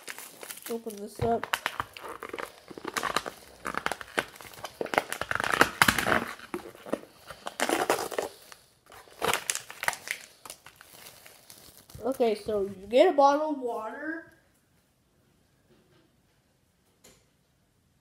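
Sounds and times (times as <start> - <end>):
plastic wrapper crinkling: 0.0 - 13.0.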